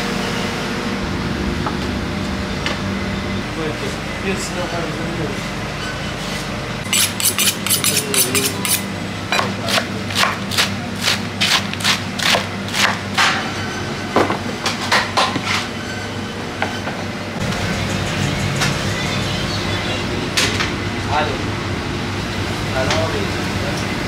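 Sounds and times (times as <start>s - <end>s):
kitchen hum: 0.0s - 17.8s.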